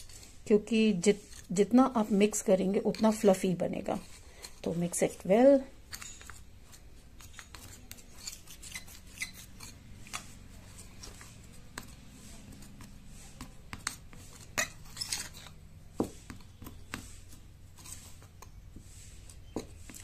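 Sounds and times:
metal fork scraping bowl: 0:01.0 - 0:04.5, 0:05.9 - 0:06.5, 0:07.2 - 0:09.9, 0:14.2 - 0:15.6.

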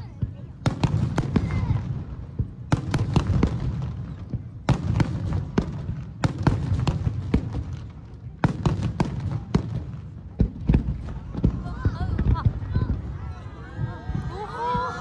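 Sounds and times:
firework bangs: 0:00.2 - 0:13.3.

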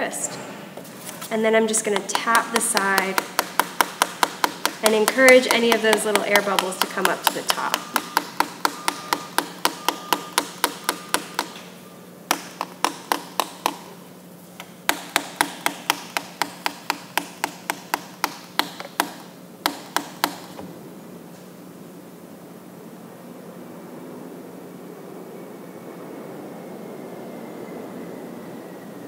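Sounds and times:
wooden stick tapping plastic cup: 0:01.9 - 0:11.6, 0:12.3 - 0:13.9.

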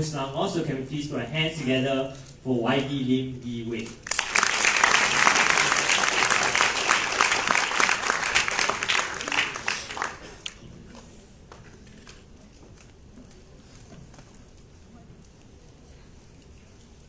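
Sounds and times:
audience applauding: 0:04.0 - 0:10.6.

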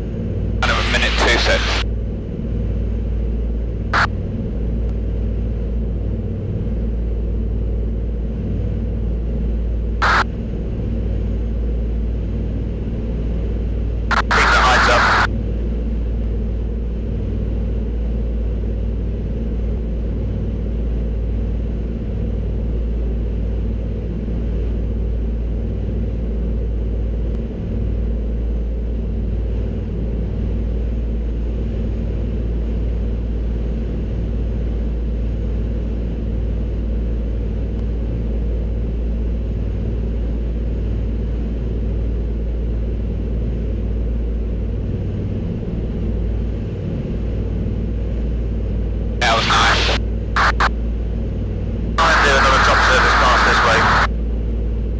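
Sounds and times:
aircraft piston engines droning: 0:00.0 - 0:24.0, 0:43.5 - 0:54.9.

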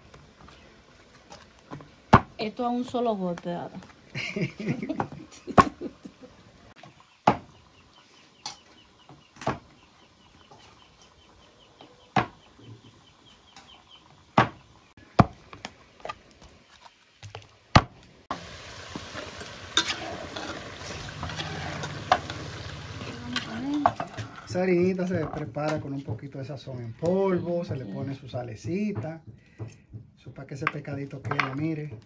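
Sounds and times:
sharp knocks on plantain: 0:07.2 - 0:07.5.

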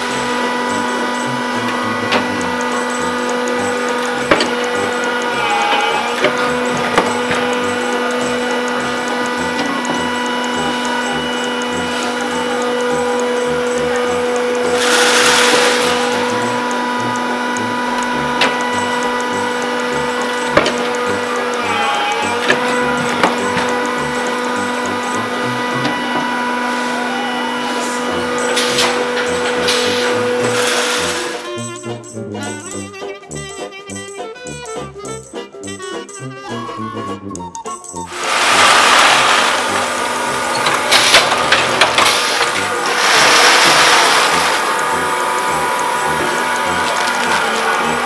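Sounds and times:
machinery humming and ticking: 0:00.0 - 0:48.0
loud hiss: 0:14.7 - 0:17.1, 0:38.1 - 0:46.8.

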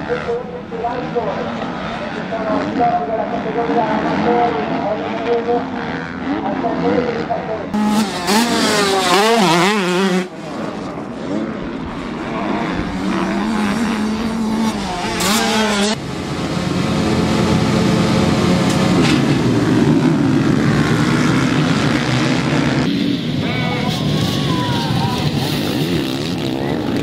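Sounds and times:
dirt bike engines revving: 0:00.0 - 0:27.0.

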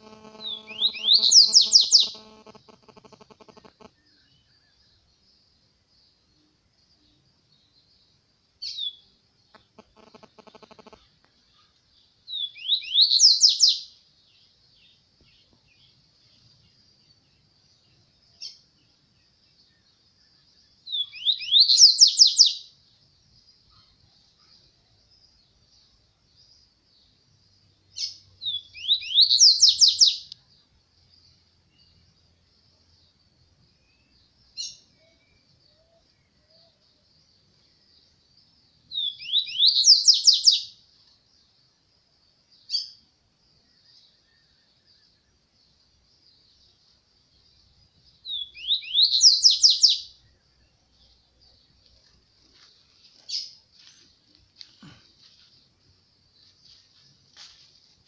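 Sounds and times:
faint high hiss: 0:00.0 - 0:23.7
bird singing high notes: 0:00.2 - 0:02.2
bird singing whistled sweeps: 0:12.4 - 0:13.8, 0:20.9 - 0:22.6, 0:28.0 - 0:30.3, 0:39.0 - 0:40.7, 0:48.3 - 0:50.1.

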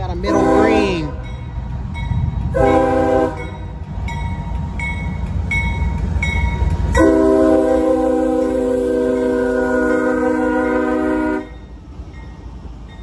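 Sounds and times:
train rumbling: 0:00.0 - 0:13.0
locomotive air horn blowing: 0:00.3 - 0:00.9, 0:02.5 - 0:03.6, 0:06.9 - 0:11.6.

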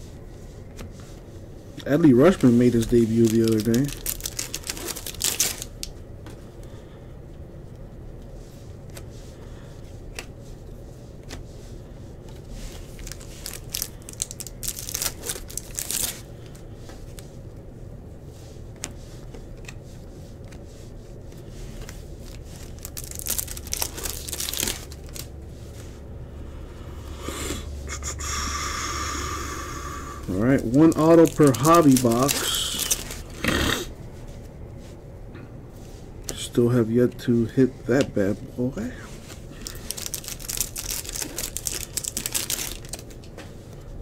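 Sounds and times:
cards rustling and clicking: 0:01.8 - 0:05.9, 0:12.3 - 0:17.2, 0:21.3 - 0:25.8, 0:30.5 - 0:33.4, 0:39.2 - 0:43.6
foil wrapper crinkling and tearing: 0:01.9 - 0:05.9, 0:12.7 - 0:16.3, 0:21.7 - 0:25.3, 0:30.3 - 0:33.4, 0:39.5 - 0:43.2
low hum: 0:19.6 - 0:40.3.

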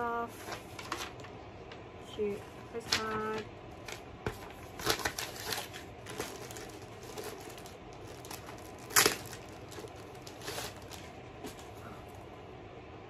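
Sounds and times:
plastic packaging crinkling: 0:02.9 - 0:12.1.

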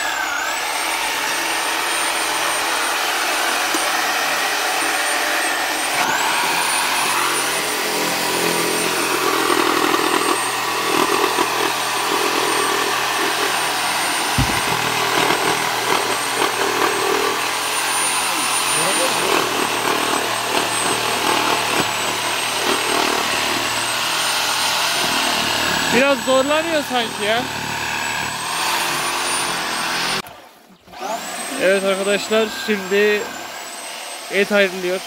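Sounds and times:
electric saw whining: 0:00.0 - 0:35.0
saw blade cutting bone: 0:00.7 - 0:30.3
low thump: 0:14.4 - 0:14.9.

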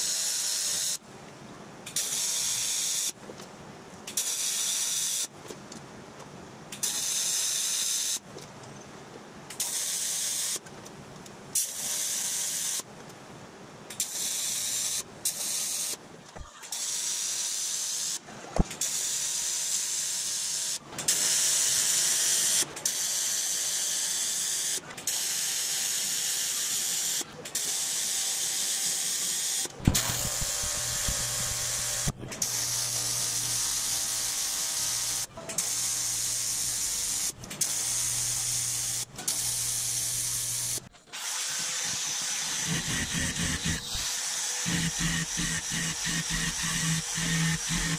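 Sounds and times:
welding arc hissing: 0:16.7 - 0:47.9.

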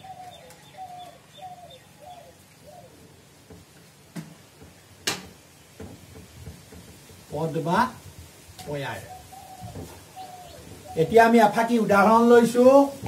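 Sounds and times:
bird calling faintly: 0:08.7 - 0:11.4.

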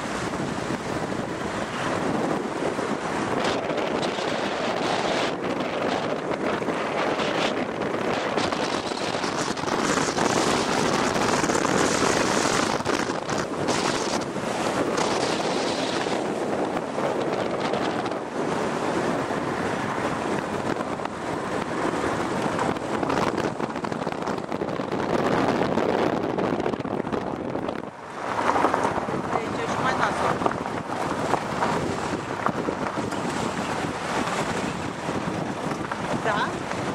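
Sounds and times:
road and tyre noise: 0:00.0 - 0:36.9
wind on microphone: 0:00.0 - 0:36.9.

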